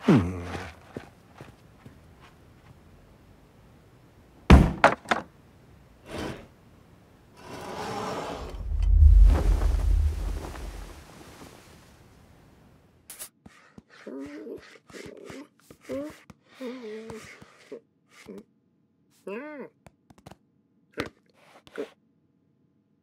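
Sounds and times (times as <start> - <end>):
long rumbling crash: 8.4 - 11.2.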